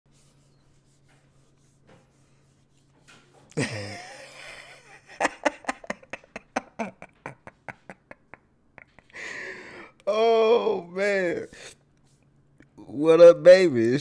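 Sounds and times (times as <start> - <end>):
man laughing breathily: 3.5 - 10.4
man's falling vocal sound: 10.1 - 10.9.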